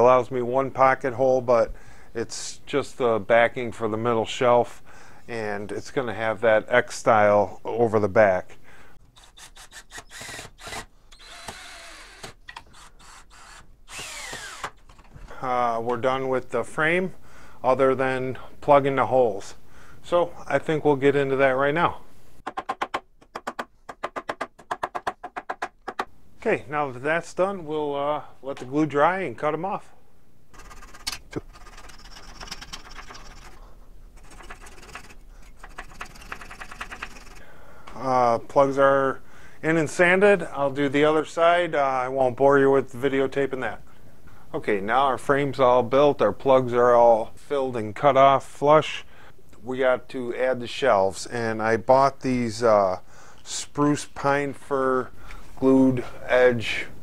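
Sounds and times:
scratchy trimming strokes on wood: 9.1s - 14.8s, 34.2s - 37.4s
cordless drill driving screw: 9.1s - 15.1s.

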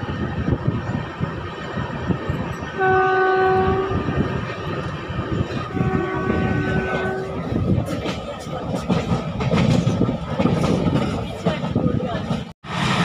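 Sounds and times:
train rumbling on rails: 0.0s - 13.0s
train horn blast: 2.8s - 4.1s, 5.7s - 7.5s.

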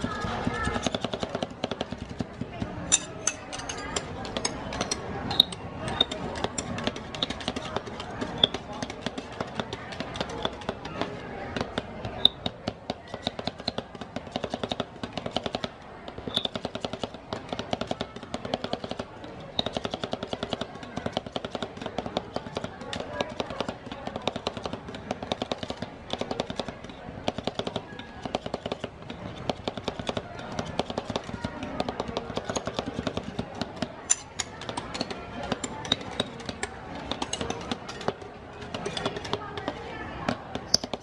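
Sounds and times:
metal spatulas chopping on steel: 0.5s - 10.7s, 34.0s - 38.2s.

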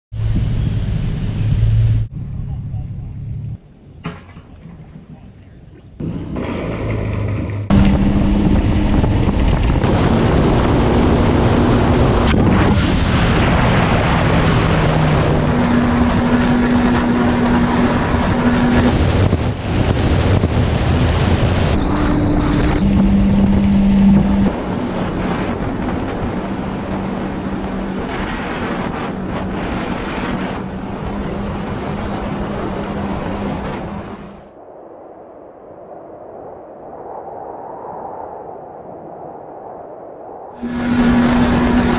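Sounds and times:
wind buffeting microphone: 0.2s - 41.9s
jet ski engine running: 6.0s - 12.6s, 14.4s - 34.4s, 40.6s - 41.9s
water rushing and spraying: 6.0s - 34.5s, 40.6s - 41.9s.

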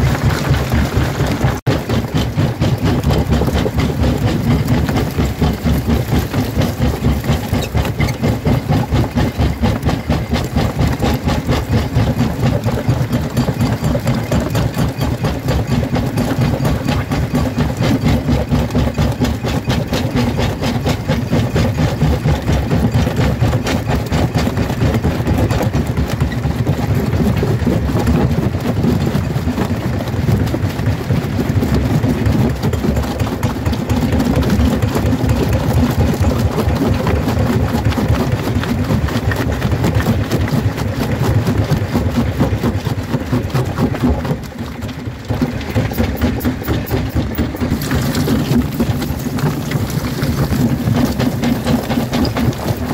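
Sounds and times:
jaw crusher crushing stone: 0.0s - 52.9s.

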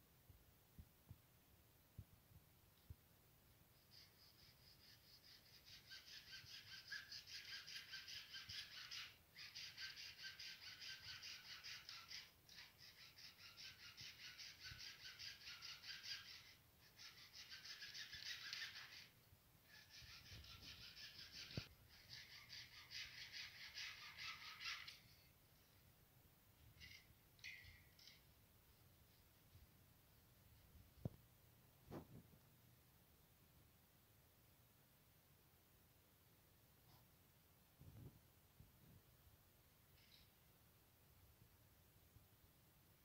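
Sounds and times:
hacksaw cutting plastic pipe: 3.9s - 25.0s.

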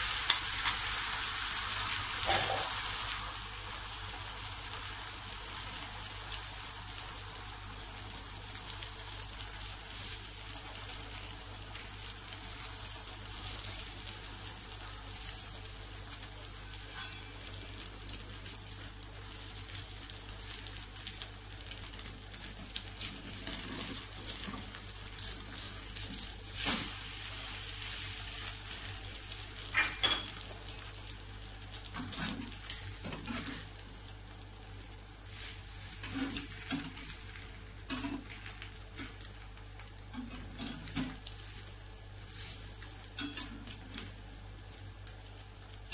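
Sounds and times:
egg sizzling in a frying pan: 0.0s - 45.9s
metal spatula scraping a pan: 16.9s - 17.4s, 35.3s - 36.9s.

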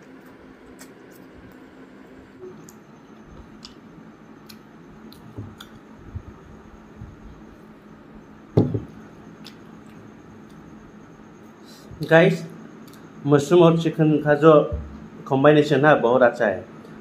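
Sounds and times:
glass knocking on wooden table: 8.6s - 8.9s.

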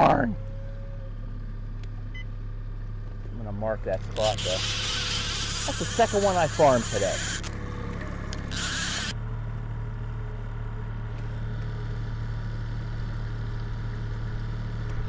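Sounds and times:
outboard motor droning: 3.0s - 9.4s.

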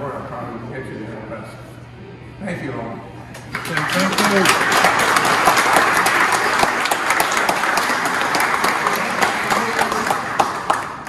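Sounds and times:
crowd applauding: 3.4s - 11.0s.

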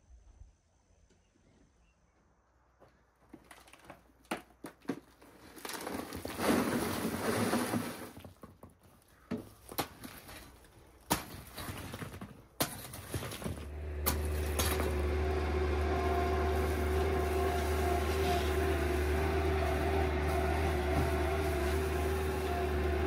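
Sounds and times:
rubble clattering into a pit: 3.4s - 8.7s, 9.7s - 15.0s
shovel blade striking rocks: 9.7s - 15.1s.

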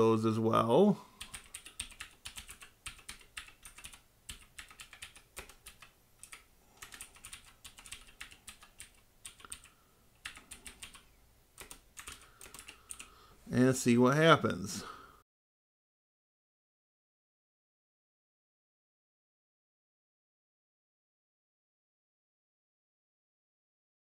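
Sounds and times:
typing on computer keyboard: 1.2s - 11.0s, 11.6s - 13.1s.

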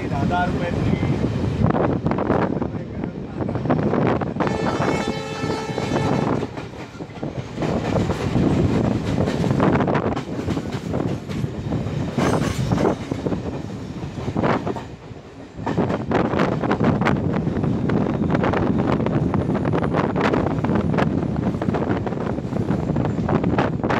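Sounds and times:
train rumble: 0.0s - 23.9s
locomotive horn: 4.4s - 6.5s.

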